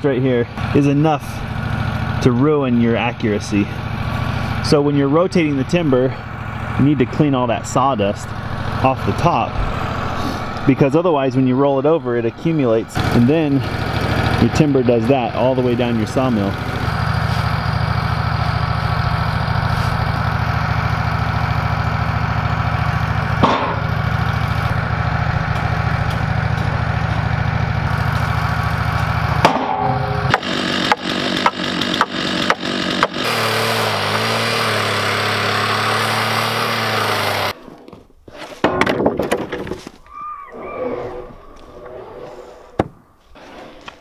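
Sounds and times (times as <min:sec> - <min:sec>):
sawmill engine idling: 0:00.2 - 0:37.6
sharp knocks: 0:23.4 - 0:23.9, 0:29.4 - 0:33.2
thumps: 0:23.4 - 0:24.0, 0:29.4 - 0:33.2, 0:37.6 - 0:40.1.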